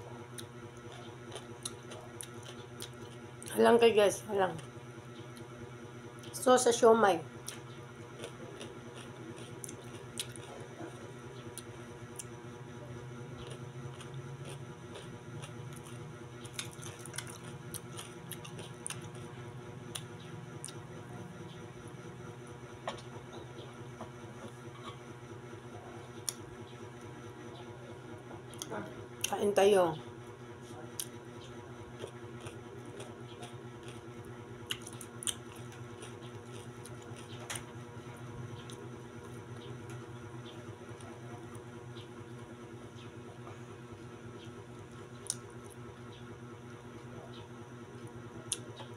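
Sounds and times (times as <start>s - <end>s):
steady low hum: 0.0s - 48.9s
chewing and squishy mouth sounds: 0.2s - 3.6s, 7.4s - 21.7s, 30.6s - 43.2s, 44.0s - 48.9s
fingers picking at food: 30.6s - 34.0s.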